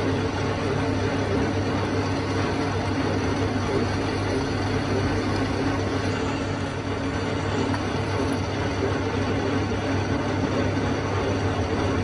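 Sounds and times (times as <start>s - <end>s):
metalworking machine humming: 0.0s - 12.0s.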